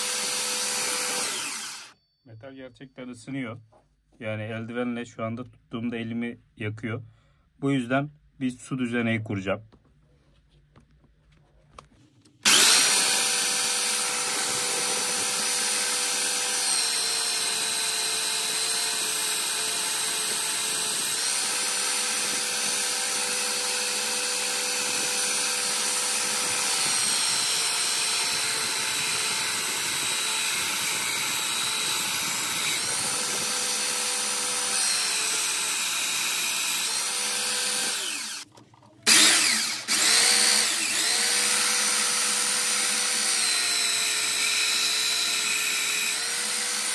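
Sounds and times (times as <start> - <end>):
belt sander whining: 0.0 - 2.0, 12.4 - 46.9.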